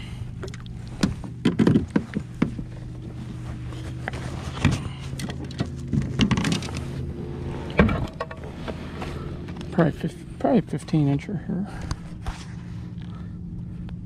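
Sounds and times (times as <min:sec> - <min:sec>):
steady low hum: 0:00.0 - 0:14.0
knocks and thumps on a kayak: 0:00.4 - 0:02.8.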